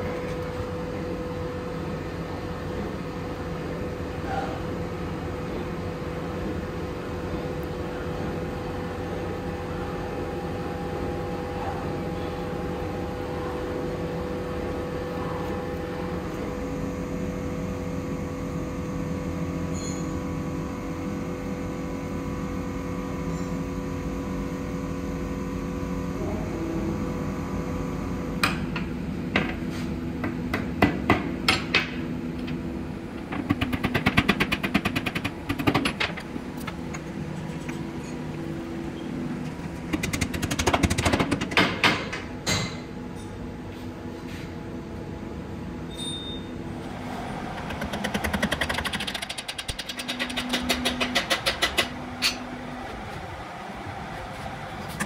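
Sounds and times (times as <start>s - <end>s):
machine motor humming: 32.2s - 41.8s, 46.7s - 55.0s.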